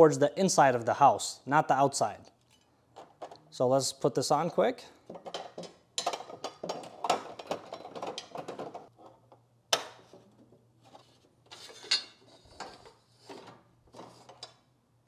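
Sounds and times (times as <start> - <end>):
plastic rattles and clicks: 5.1 - 9.4.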